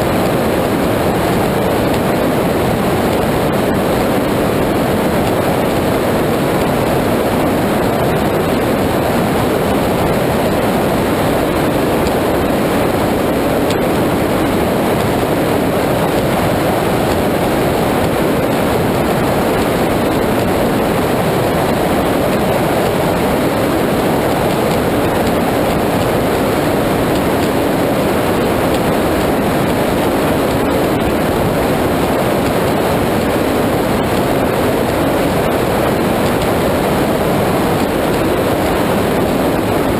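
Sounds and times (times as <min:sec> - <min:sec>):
water rushing: 0:00.0 - 0:39.9.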